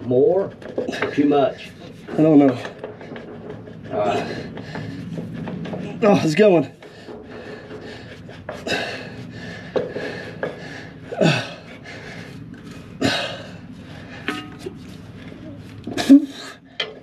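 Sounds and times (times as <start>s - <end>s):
man grunting and breathing hard: 3.9s - 4.9s, 7.3s - 12.2s.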